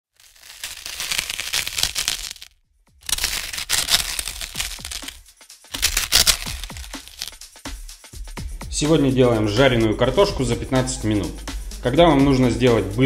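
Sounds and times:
harsh crackling and crunching: 0.0 - 7.4
intro music: 3.0 - 13.0.

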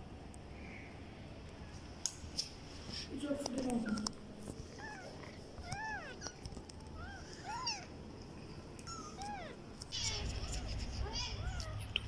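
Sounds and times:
kittens mewing: 4.6 - 8.0, 8.8 - 12.0.

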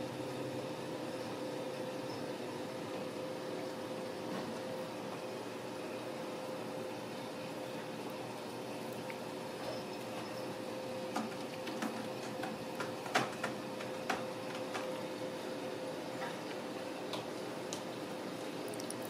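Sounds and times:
steady room hum: 0.0 - 19.0.

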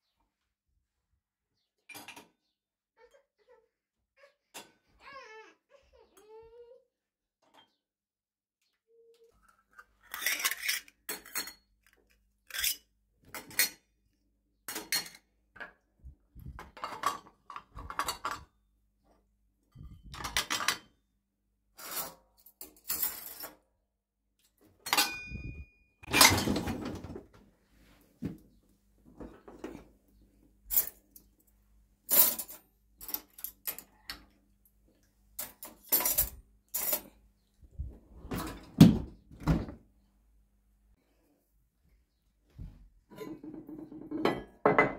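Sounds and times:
dishes clinking in dishwasher racks: 14.7 - 15.8, 24.8 - 27.2, 43.1 - 44.9.

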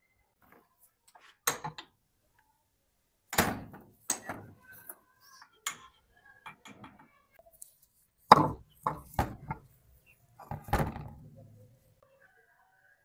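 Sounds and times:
metal clunks and knocks: 8.3 - 9.7, 10.4 - 11.4.

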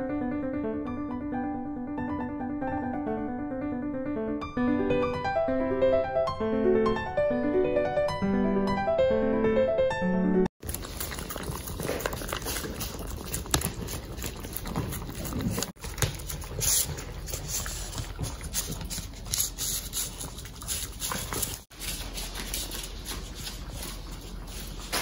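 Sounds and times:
dogs chewing and licking: 10.6 - 25.0.

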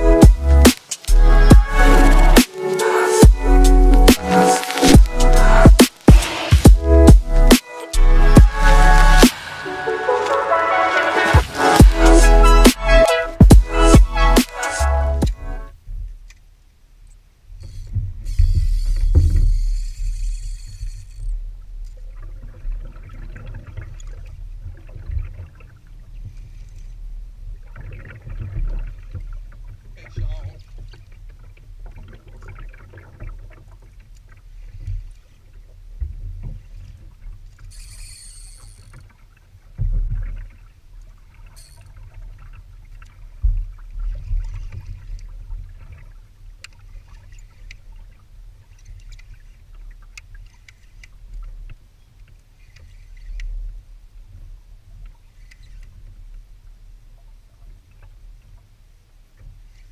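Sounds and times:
water lapping at hull: 0.0 - 59.9
wind and water rumble: 0.0 - 59.9
fishing reel handling noise: 17.6 - 21.3, 37.6 - 39.1, 41.5 - 41.9.

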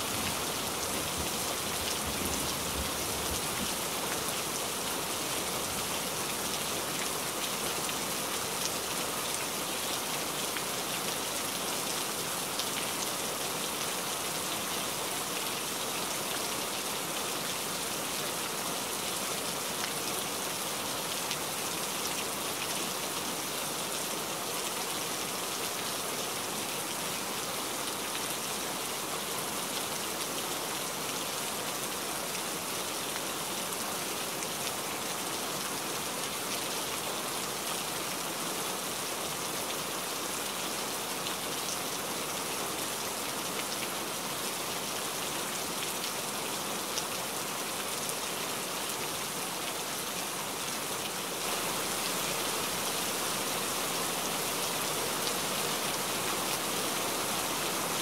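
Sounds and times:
rain on leaves: 0.0 - 58.0
individual raindrops: 49.3 - 58.0.

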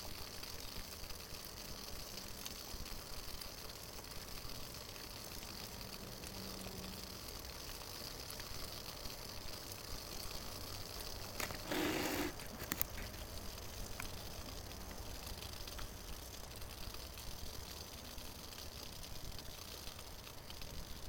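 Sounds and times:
alcohol stove hissing: 0.0 - 21.0
small clicks: 11.3 - 14.2.

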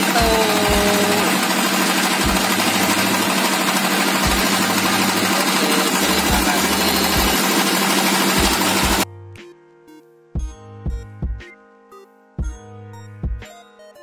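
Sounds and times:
boat engine clattering: 0.0 - 9.0.

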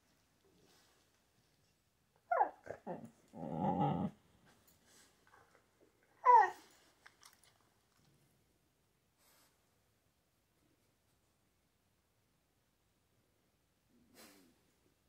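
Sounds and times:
dog grumbling: 2.3 - 4.2
dog whining: 2.3 - 4.2, 6.2 - 6.8.

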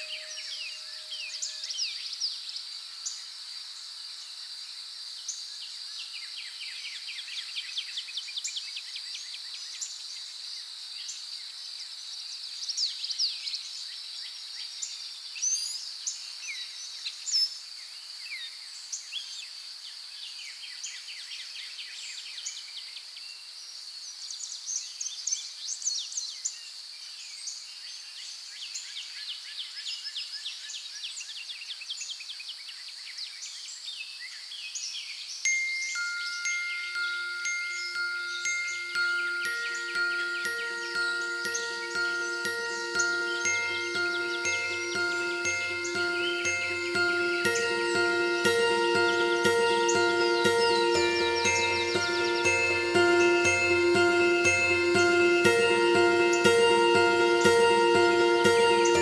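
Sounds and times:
birds chirping and trilling: 0.0 - 2.0, 35.8 - 55.8.

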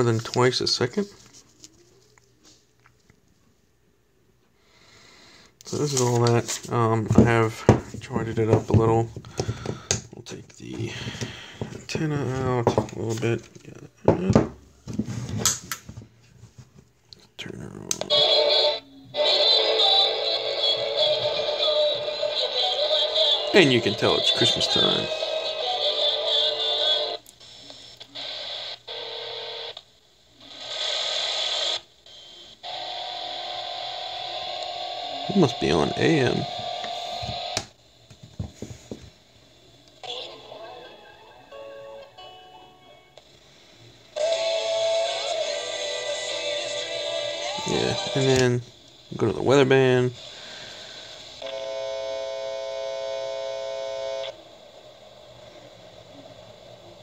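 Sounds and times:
radio static: 5.6 - 13.7, 17.8 - 29.8, 30.4 - 37.8, 43.2 - 51.6.

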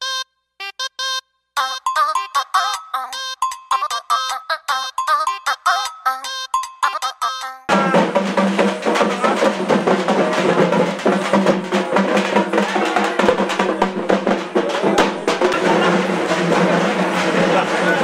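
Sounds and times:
drum-heavy music: 6.6 - 18.0.

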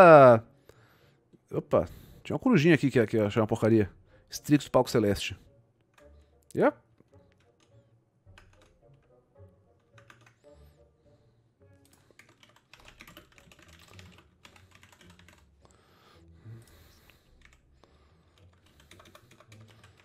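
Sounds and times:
typing on computer keyboard: 8.4 - 9.0, 9.9 - 10.4, 11.9 - 15.5, 18.4 - 20.0.

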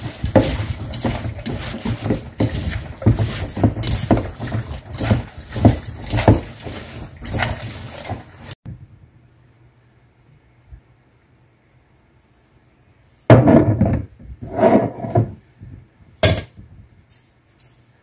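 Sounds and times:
hands squishing salad in bowl: 0.0 - 8.6.

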